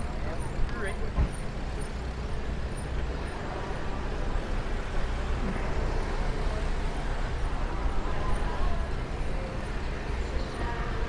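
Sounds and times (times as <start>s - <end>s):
street and traffic noise: 0.0s - 11.0s.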